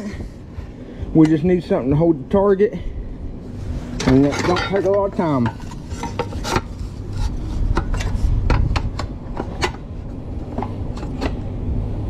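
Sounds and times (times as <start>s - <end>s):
steady low rumble: 0.0s - 12.0s.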